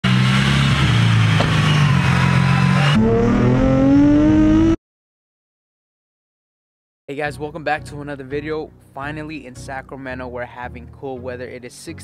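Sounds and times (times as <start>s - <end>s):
car engine accelerating: 0.0s - 4.8s.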